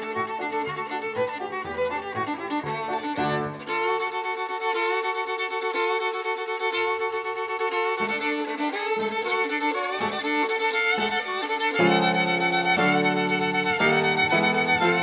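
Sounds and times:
piano chords: 0.0 - 4.0, 10.0 - 15.0
violin long bowed notes: 0.0 - 15.0.

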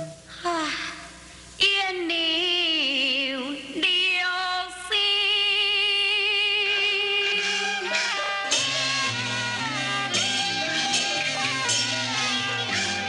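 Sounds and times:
woman singing opera: 1.6 - 8.5
low accompanying instruments: 6.4 - 13.0.

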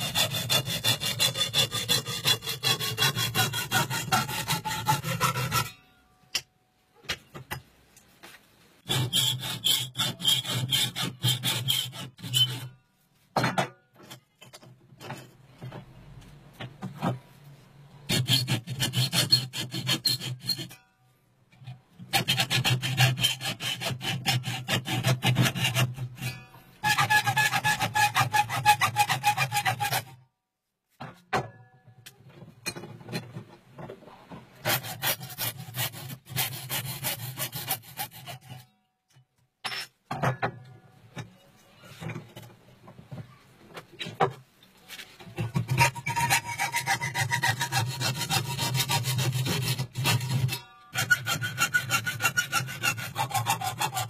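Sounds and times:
hand file rasping on metal: 0.0 - 5.7, 8.8 - 12.8, 18.1 - 20.8, 22.1 - 30.2, 34.6 - 38.7, 45.4 - 54.0.

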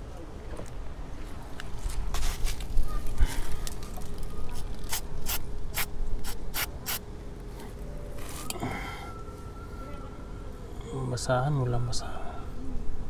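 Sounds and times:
aerosol spray hissing: 4.9 - 7.0.

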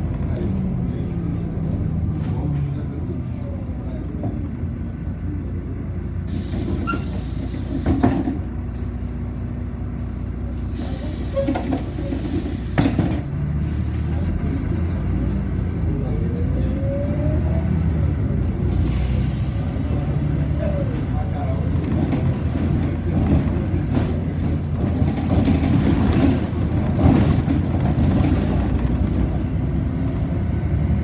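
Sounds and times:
bus engine rumble: 0.0 - 31.0.

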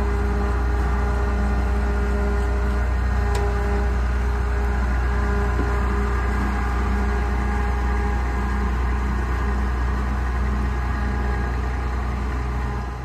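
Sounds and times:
combine diesel engine running: 0.0 - 13.0.

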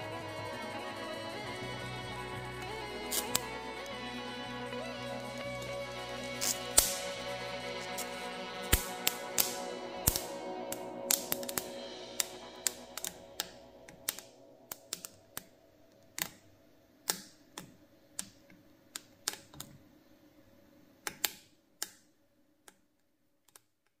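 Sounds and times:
peppers crackling and popping: 3.0 - 4.0, 5.6 - 15.5.

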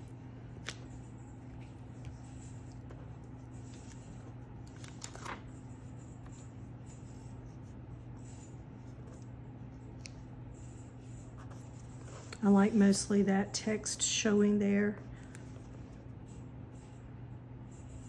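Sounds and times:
steady low hum: 0.0 - 18.0
paper crackling: 0.5 - 6.4.

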